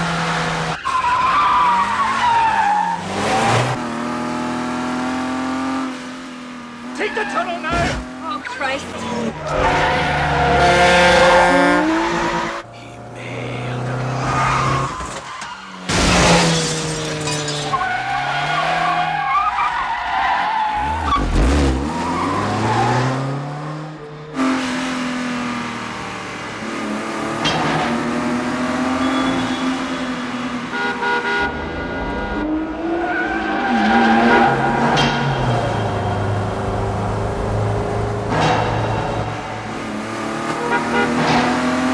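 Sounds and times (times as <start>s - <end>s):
car engines revving: 0.0s - 41.9s.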